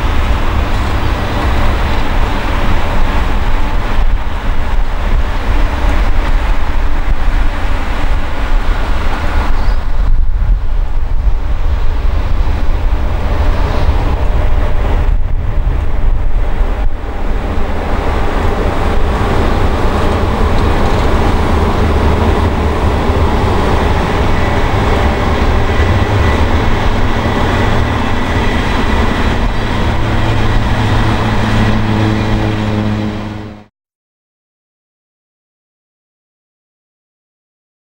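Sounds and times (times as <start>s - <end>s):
train wheels rumbling on rails: 0.0s - 33.7s
steady tones: 10.9s - 33.7s.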